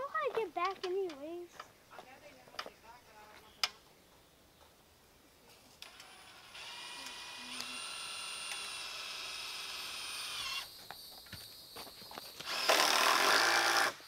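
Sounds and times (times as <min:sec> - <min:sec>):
power drill whining: 0:05.8 - 0:10.7, 0:12.4 - 0:14.0.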